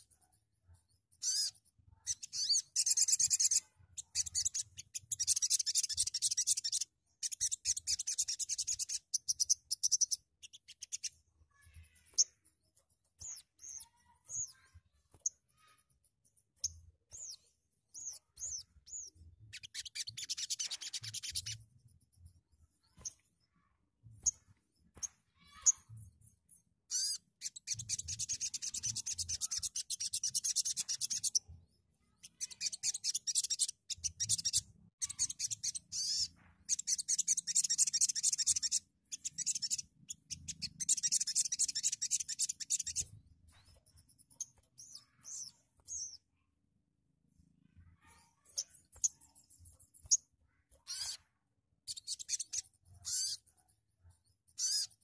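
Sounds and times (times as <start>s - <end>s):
bird short sharp chirps: 1.2s - 11.2s, 32.3s - 46.2s, 50.8s - 51.2s
bird buzzy rasping trills: 26.9s - 31.4s, 50.0s - 51.3s, 51.9s - 53.4s, 54.6s - 55.0s.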